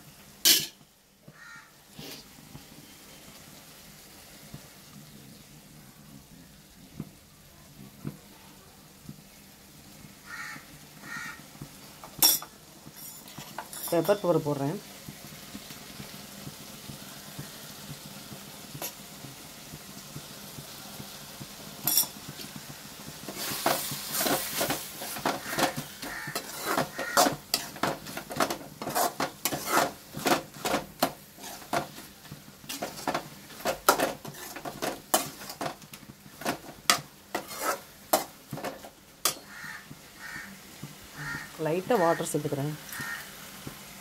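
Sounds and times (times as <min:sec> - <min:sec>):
faint sizzle: 0:00.0 - 0:44.0
spoon scraping metal pan: 0:23.3 - 0:39.7.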